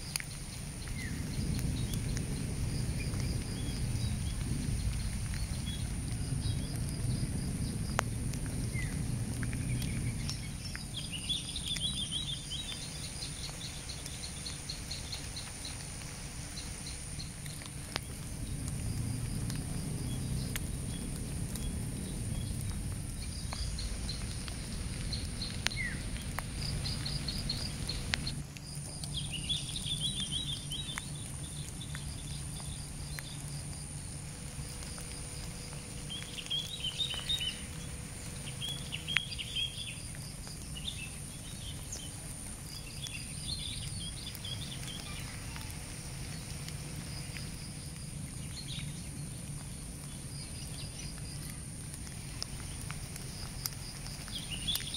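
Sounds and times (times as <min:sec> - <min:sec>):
faint clicks: 0:00.0 - 0:02.4, 0:07.9 - 0:21.8, 0:22.4 - 0:29.2, 0:48.7 - 0:54.9
low rumble: 0:00.4 - 0:50.5.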